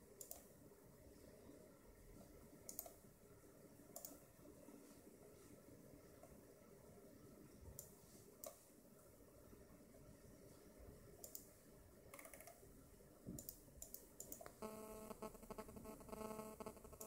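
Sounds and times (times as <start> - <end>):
faint buzzing hum with tones: 0.0 - 17.0
computer mouse clicks: 0.2 - 0.5, 2.6 - 3.0, 3.9 - 4.2, 7.8 - 8.6, 11.2 - 11.5, 12.1 - 12.6, 13.3 - 14.6.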